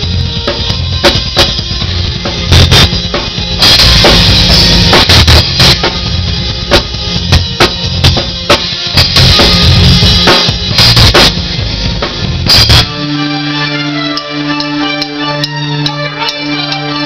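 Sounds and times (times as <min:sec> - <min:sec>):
drum kit played hard: 0:00.0 - 0:17.0
cymbal crashes: 0:02.5 - 0:11.5.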